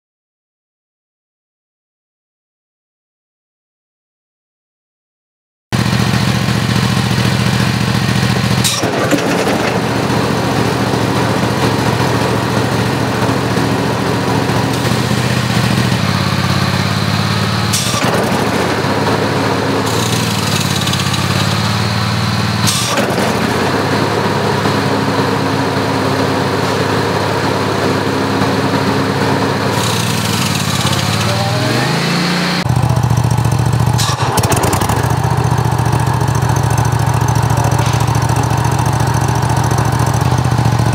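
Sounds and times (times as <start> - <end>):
belt and pulleys running: 5.8 - 40.9
mower engine running: 5.8 - 40.9.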